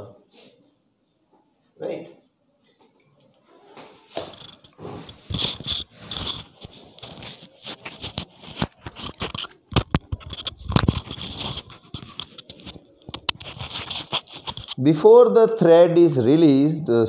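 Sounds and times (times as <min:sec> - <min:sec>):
fabric rustling against microphone: 0:03.6 - 0:14.9.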